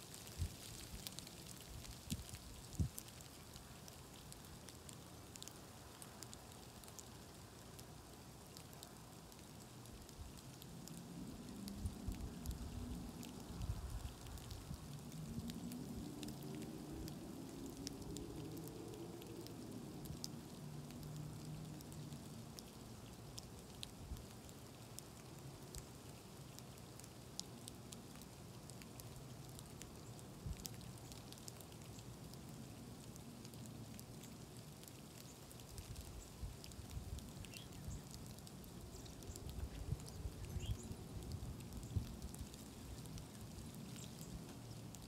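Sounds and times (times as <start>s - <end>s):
steady hiss: 0.0s - 45.0s
precipitation ticking on snow: 17.8s - 45.0s.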